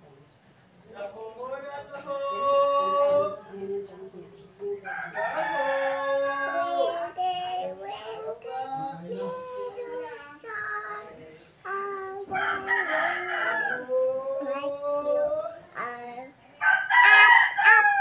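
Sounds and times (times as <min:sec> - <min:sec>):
toddler girl singing: 0:06.2 - 0:13.2, 0:13.8 - 0:16.6.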